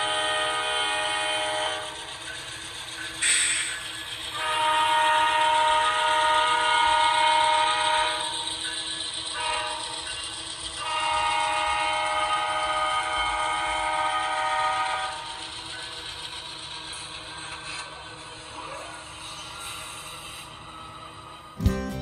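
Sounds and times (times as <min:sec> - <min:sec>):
diesel locomotive horn: 0:00.0 - 0:02.0, 0:04.3 - 0:08.4, 0:09.4 - 0:10.0, 0:10.8 - 0:15.2.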